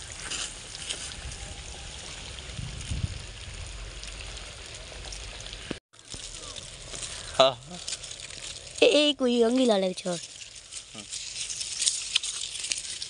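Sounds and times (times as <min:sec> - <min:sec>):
wind buffeting microphone: 0:01.0 - 0:04.4.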